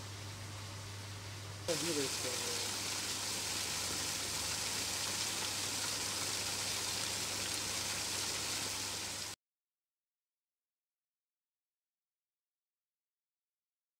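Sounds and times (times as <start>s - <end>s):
steady rushing hiss: 0.0s - 9.4s.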